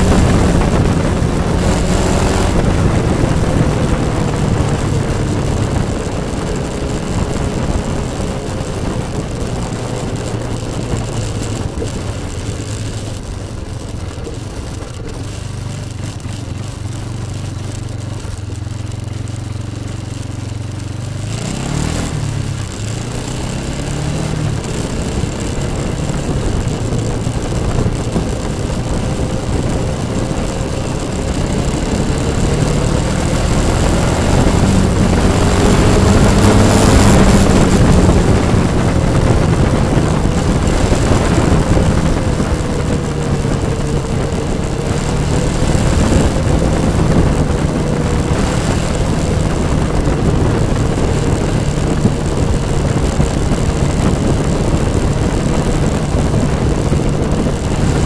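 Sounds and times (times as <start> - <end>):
atv engine running: 0.0 - 58.0.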